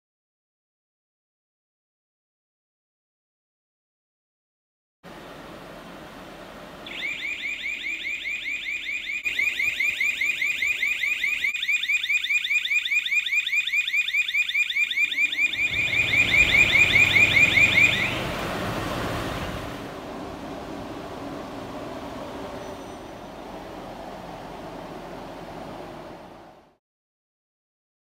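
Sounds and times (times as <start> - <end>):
pulsing two-tone electronic alarm: 6.8 - 18.3.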